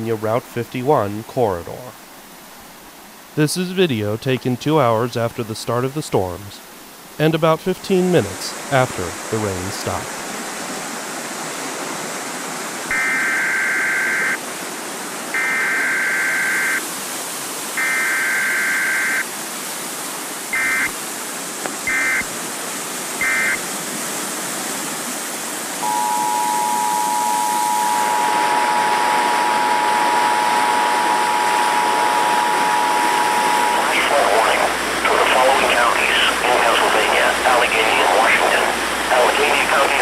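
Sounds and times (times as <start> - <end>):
creek rushing: 4.7 - 40.0
two-tone attention signal: 12.9 - 14.4, 15.4 - 16.8, 20.6 - 20.9, 21.9 - 22.3, 23.2 - 23.6, 25.8 - 34.8
warbling data tones: 12.9 - 14.4, 15.4 - 16.8, 20.6 - 20.9, 21.9 - 22.3, 23.2 - 23.6, 25.8 - 40.0.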